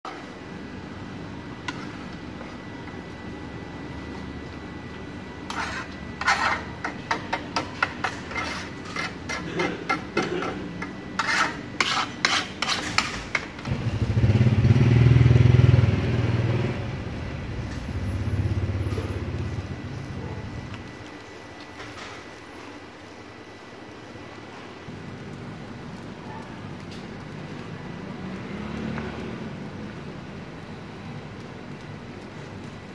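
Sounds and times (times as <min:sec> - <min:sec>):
motorbike engine passing: 0:13.7 - 0:20.1, 0:28.2 - 0:29.6.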